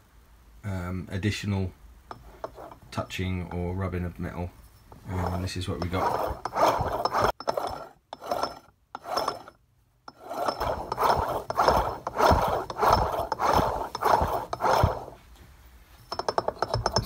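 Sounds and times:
supercharger rotors rattling: 5.0s - 15.2s, 16.1s - 17.0s.

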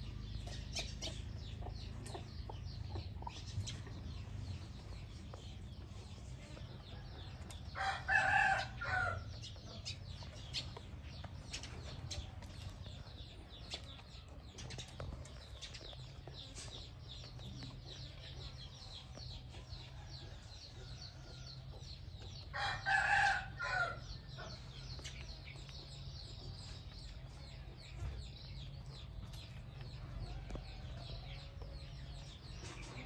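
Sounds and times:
chickens pecking metal troughs: 0.1s - 33.0s
rooster crowing: 7.8s - 9.2s, 22.6s - 24.0s.

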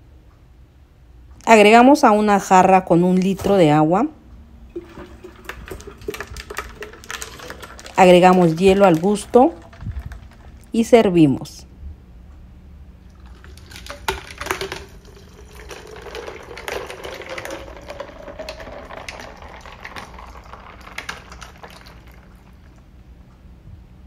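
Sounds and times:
ice clinking in glass: 4.7s - 10.4s, 13.2s - 22.6s
liquid pouring into jar: 4.7s - 10.7s, 13.1s - 22.9s.

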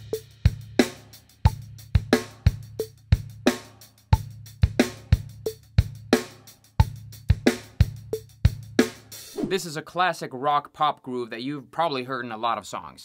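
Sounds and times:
bass drum: 0.0s - 3.5s, 6.8s - 9.7s
snare drum backbeat: 8.8s - 9.7s.

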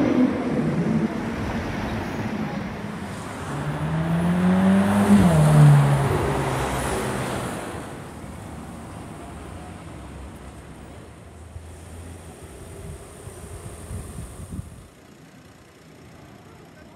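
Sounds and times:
street traffic noise: 0.0s - 16.9s
sports car engine accelerating: 3.5s - 7.2s.

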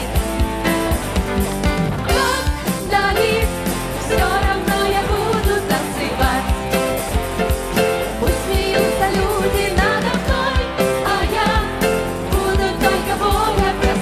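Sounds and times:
band with drum kit: 0.0s - 14.0s
women singing worship song: 2.1s - 6.7s, 8.2s - 14.0s.

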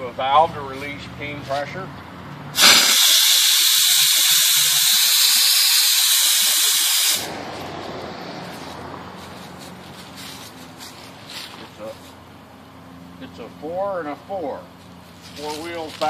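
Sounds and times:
steam valve hissing: 2.6s - 7.4s.

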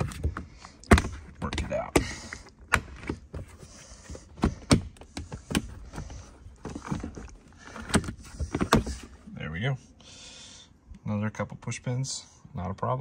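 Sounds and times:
plastic rubbing and creaking: 0.0s - 9.2s.

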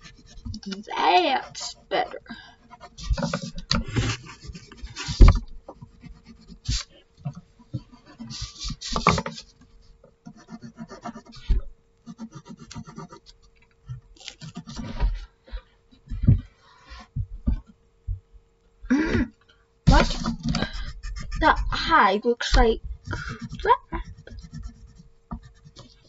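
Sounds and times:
pencil scratching on paper: 0.0s - 1.9s, 2.6s - 6.9s, 7.8s - 9.6s, 10.2s - 13.3s, 14.2s - 15.0s, 19.9s - 22.0s, 23.0s - 26.0s
faint steady hum: 0.0s - 26.0s
hand rubbing paper: 2.7s - 6.9s, 7.8s - 11.5s, 19.9s - 22.0s, 23.0s - 26.0s.

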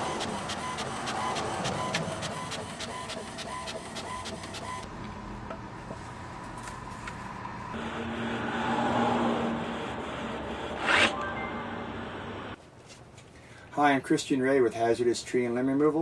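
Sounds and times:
printer feed motor humming: 0.0s - 4.9s, 7.8s - 10.9s.

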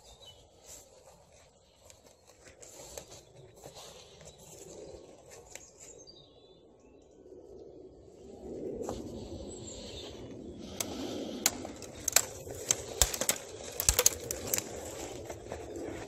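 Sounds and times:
leaves and plants rustling: 0.0s - 6.0s, 8.8s - 16.0s
footsteps on stony dirt path: 11.6s - 16.0s.

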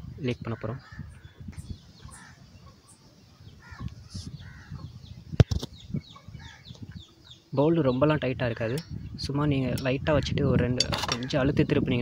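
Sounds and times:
faint bird chirps: 0.0s - 9.4s.

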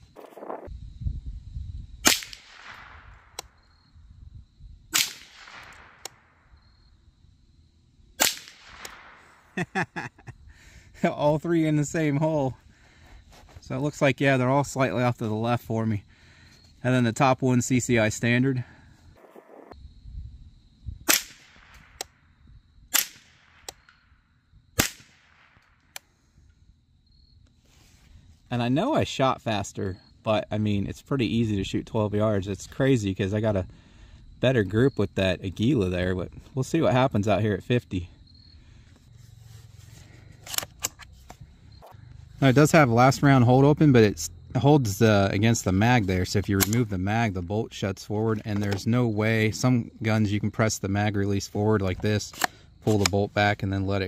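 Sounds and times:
rifle shots with echo: 2.0s - 3.4s, 5.0s - 6.4s, 8.2s - 9.6s, 21.1s - 22.0s, 22.9s - 23.7s, 24.8s - 25.6s.

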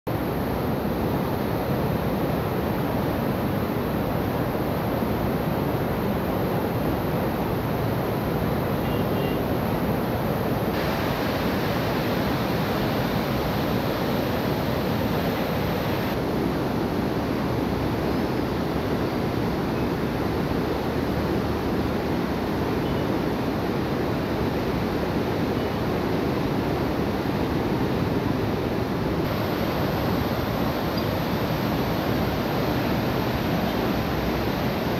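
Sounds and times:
floodwater rushing: 10.7s - 16.2s, 29.2s - 34.9s.

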